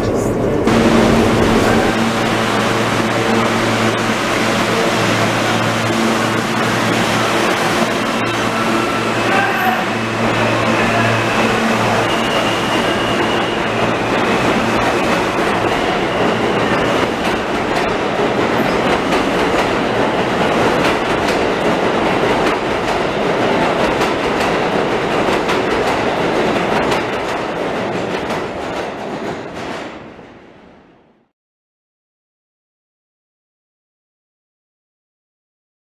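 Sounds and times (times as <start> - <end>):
steady whine: 0.0 - 18.2
train wheels rumbling on rails: 0.0 - 31.0.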